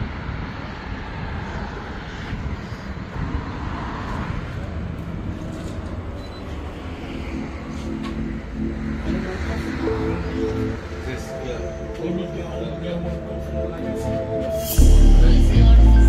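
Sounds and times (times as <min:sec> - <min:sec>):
street traffic rumble: 0:00.0 - 0:16.0
background music with held notes: 0:07.2 - 0:16.0.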